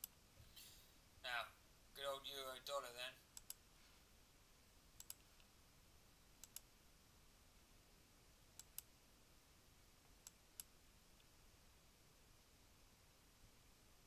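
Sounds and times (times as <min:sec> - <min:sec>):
computer mouse clicking: 0:00.0 - 0:00.2, 0:03.4 - 0:03.6, 0:05.0 - 0:05.5, 0:06.4 - 0:06.7, 0:08.6 - 0:08.9
faint room hiss: 0:00.0 - 0:14.0.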